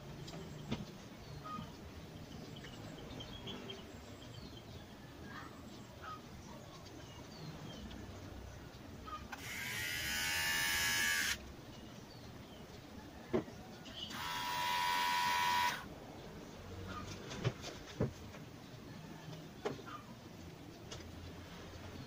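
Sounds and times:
electric hair trimmer buzzing: 9.3 - 11.4, 14.1 - 15.9.

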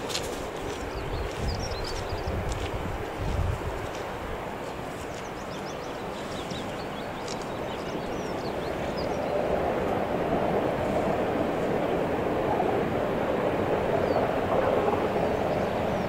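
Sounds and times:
small birds chirping: 0.0 - 3.4, 4.8 - 9.5.

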